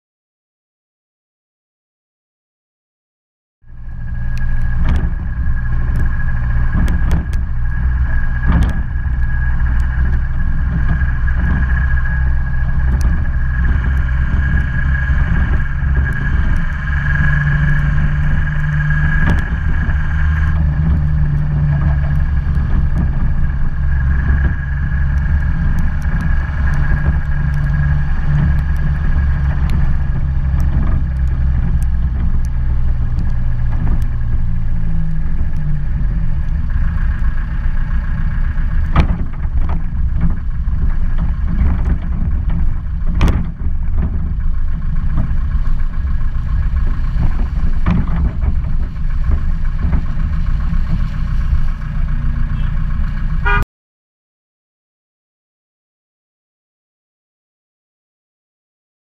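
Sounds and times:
car engine running: 3.6 - 53.6
steady high whine: 3.6 - 53.6
tyre noise on wet road: 3.7 - 53.6
small clicks: 4.1 - 37.9.

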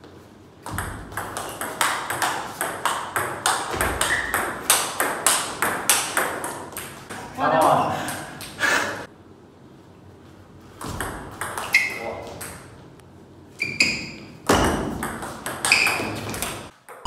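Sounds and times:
table tennis ball hits: 0.6 - 7.2, 10.8 - 12.8, 13.8 - 17.0.

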